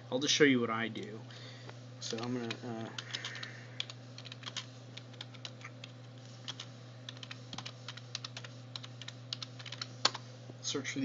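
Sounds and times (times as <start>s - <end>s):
steady low hum: 0.0s - 11.0s
keyboard typing: 2.1s - 10.2s.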